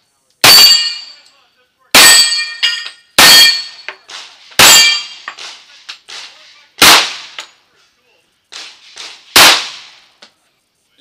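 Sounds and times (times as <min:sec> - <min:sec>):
pistol shots: 0:00.4 - 0:01.1, 0:02.0 - 0:02.6, 0:03.2 - 0:07.5, 0:08.5 - 0:10.1
steel targets clanging: 0:00.4 - 0:01.4, 0:02.0 - 0:07.6.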